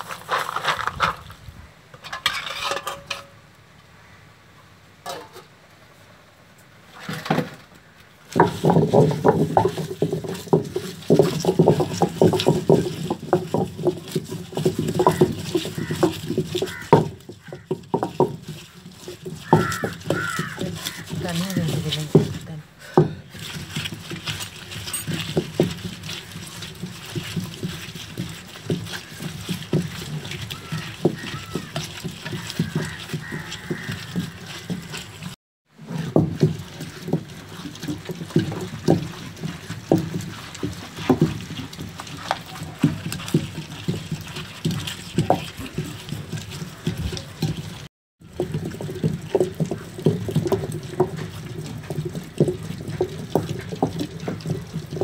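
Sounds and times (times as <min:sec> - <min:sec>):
stone pestle scraping in mortar: 0:00.0 - 0:03.4, 0:08.3 - 0:55.0
crunching knocks: 0:08.3 - 0:55.0
wet squelching: 0:18.4 - 0:35.4.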